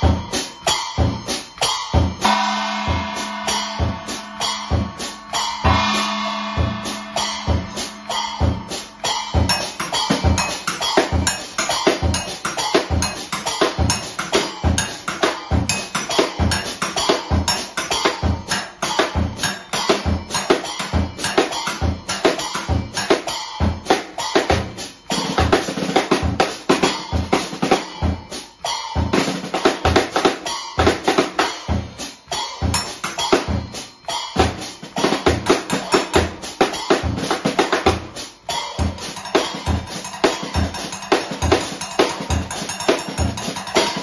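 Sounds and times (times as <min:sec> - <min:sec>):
bass drum beat: 0:00.0 - 0:19.5
cymbals ringing: 0:00.0 - 0:29.1
snare and tom strokes: 0:00.0 - 0:44.0.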